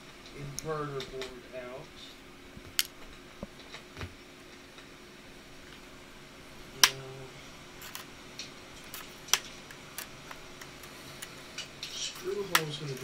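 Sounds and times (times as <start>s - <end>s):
sharp plastic snap: 6.8s - 7.0s, 12.5s - 12.7s.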